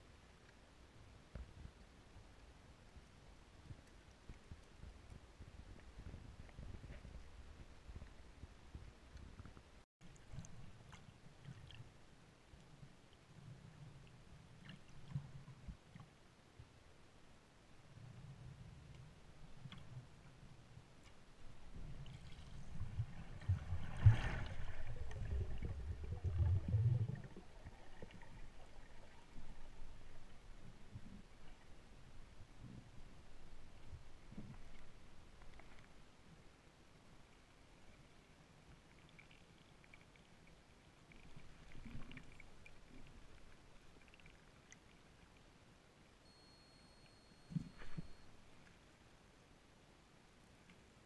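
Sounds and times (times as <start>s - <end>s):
underwater rumble with thumps: 3.0s - 11.9s, 21.4s - 35.9s
muffled underwater ambience: 46.3s - 48.8s.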